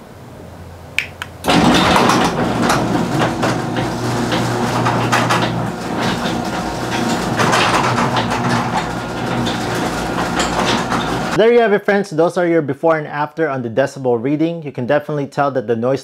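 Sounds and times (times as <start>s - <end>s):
garage door opener motor hum: 1.3s - 11.4s
rollers rattling in tracks: 1.4s - 11.4s.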